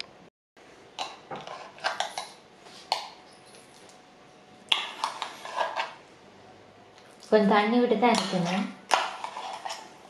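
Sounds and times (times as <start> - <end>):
spoon scraping and clinking bowl: 4.7 - 6.0, 8.1 - 10.0.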